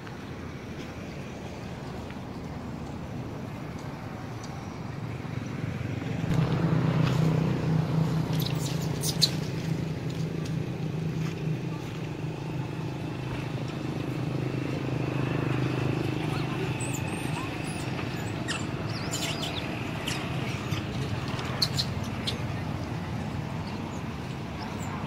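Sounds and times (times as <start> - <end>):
motor engine running: 5.3 - 24.6.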